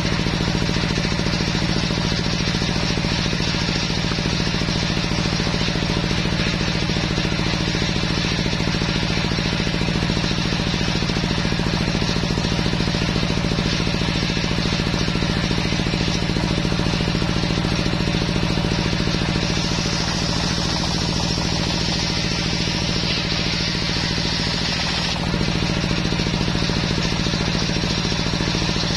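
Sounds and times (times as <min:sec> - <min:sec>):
table saw ripping wood: 0:12.0 - 0:27.8.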